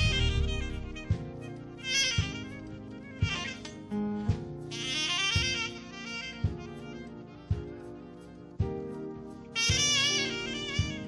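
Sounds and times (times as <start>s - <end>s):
kick drum hits: 0.0s - 1.4s
saxophone high wavering note: 0.0s - 8.4s, 9.5s - 11.0s
gospel band music: 0.0s - 11.0s.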